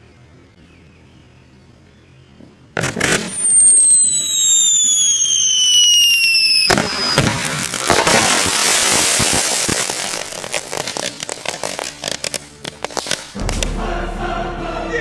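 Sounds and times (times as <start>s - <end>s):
fireworks whistling: 2.8s - 13.6s
firework crackling and pops: 2.8s - 13.8s
loud firework blast: 2.8s - 14.0s.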